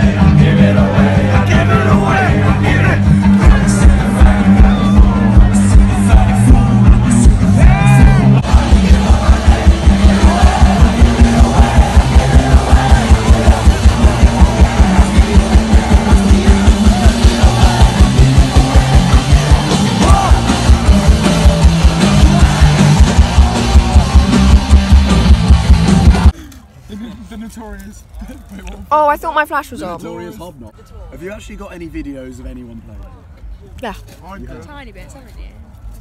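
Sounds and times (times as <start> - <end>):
fast drum beat: 0.0 - 26.3
guitars: 0.0 - 26.3
yelled vocals: 0.0 - 26.3.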